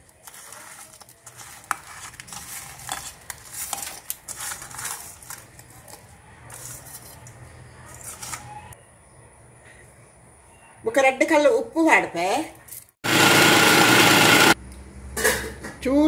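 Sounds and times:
steel clinking and scraping: 0.0 - 8.6.

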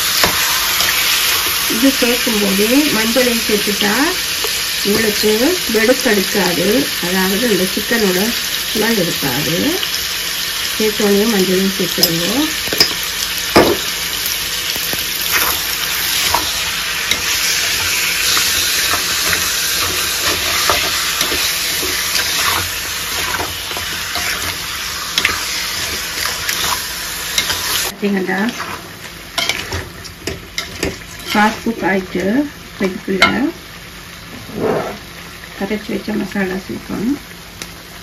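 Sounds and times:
chicken sizzling in hot oil: 0.0 - 38.0
wooden spatula scraping pan: 34.4 - 35.0.

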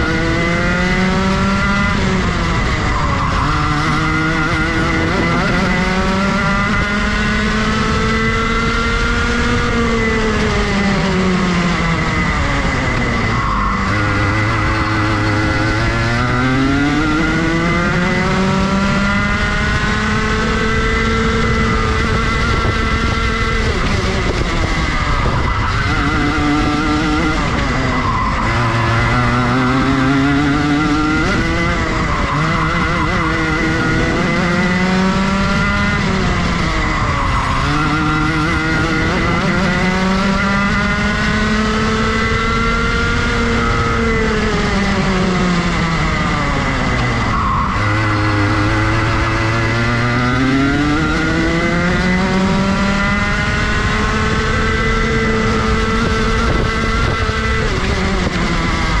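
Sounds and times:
kart engine at racing speed: 0.0 - 59.0.

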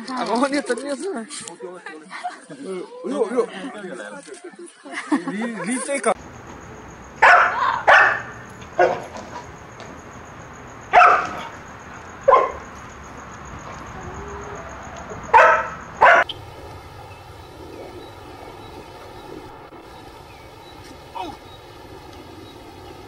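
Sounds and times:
large dog barking: 7.2 - 9.5, 10.9 - 12.7, 14.1 - 16.3
faint steady hum: 13.9 - 23.0.

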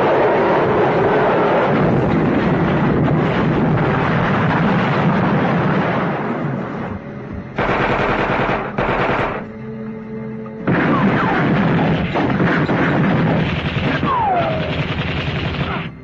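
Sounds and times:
automatic rifle gunfire: 7.6 - 9.5, 10.7 - 15.9.

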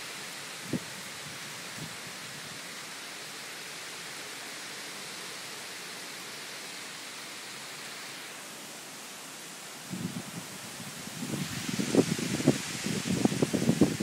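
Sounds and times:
heavy rain pouring: 0.0 - 14.0.

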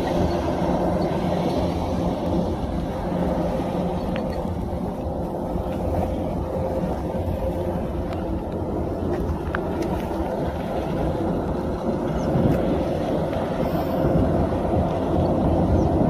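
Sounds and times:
combine harvester hum and whine: 0.0 - 16.0.

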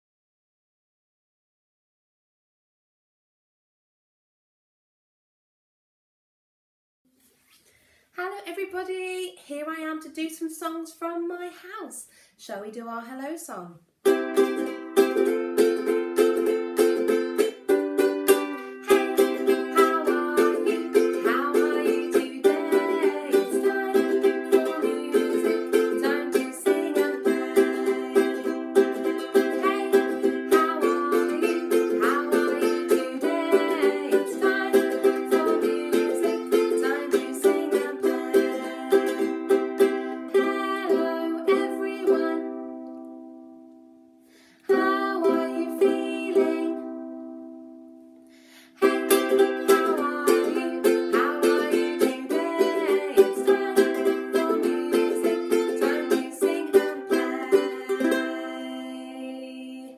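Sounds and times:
ukulele strumming: 14.0 - 59.9.

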